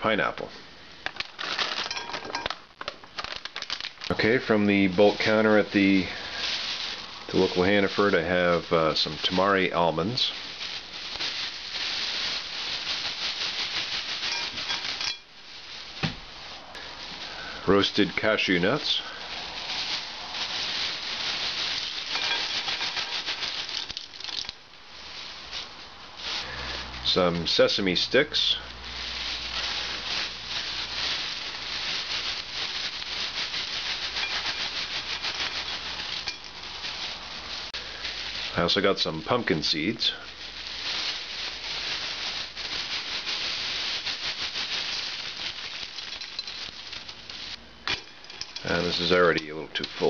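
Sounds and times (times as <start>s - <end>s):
plastic bag rustling: 1.0s - 50.0s
nuts rattling into bowl: 1.1s - 4.2s, 21.8s - 24.6s, 44.8s - 49.1s
seeds rattling into a bowl: 1.1s - 15.7s, 17.0s - 50.0s.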